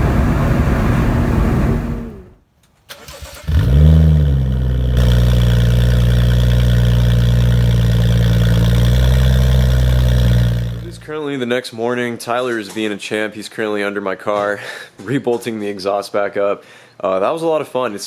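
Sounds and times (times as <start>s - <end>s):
car engine while driving: 0.0s - 2.4s, 3.4s - 11.0s
engine starting with rev: 1.5s - 11.0s
engine idling: 4.3s - 11.1s.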